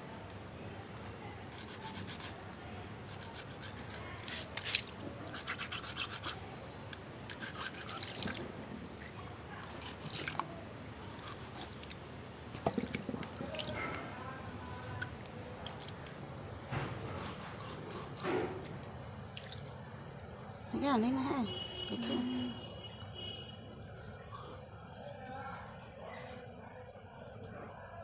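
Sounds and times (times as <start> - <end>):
fish scraping on rough stone: 1.5 - 2.4, 3.1 - 6.4, 7.3 - 8.4, 11.1 - 12.0.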